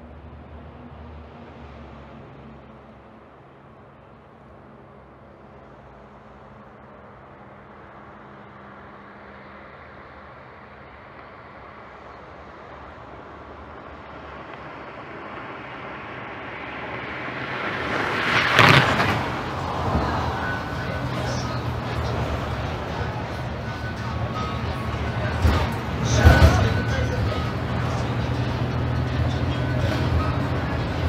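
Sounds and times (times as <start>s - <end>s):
bus engine running: 0.0s - 31.0s
vehicle engine and tyre noise: 0.0s - 31.0s.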